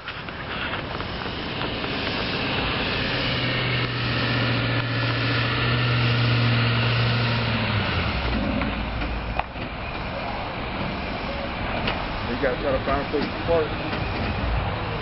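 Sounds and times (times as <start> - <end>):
pickup truck engine drone: 0.0 - 15.0.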